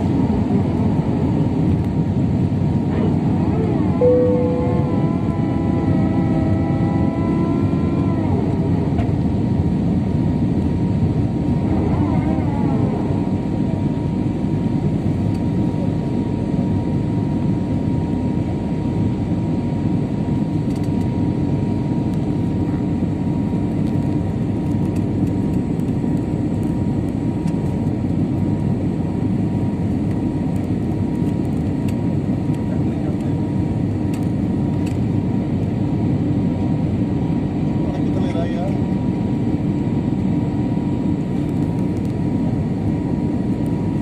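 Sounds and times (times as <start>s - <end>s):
jet engines and airflow rumble: 0.0s - 44.0s
thin high tone: 4.0s - 5.4s.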